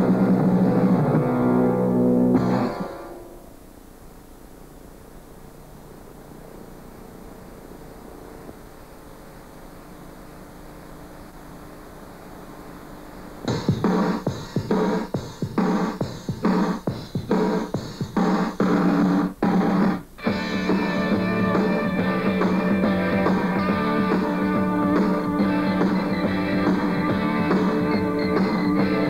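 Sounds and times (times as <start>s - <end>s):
faint tape hiss: 0.0s - 29.0s
band playing a song: 19.9s - 29.0s.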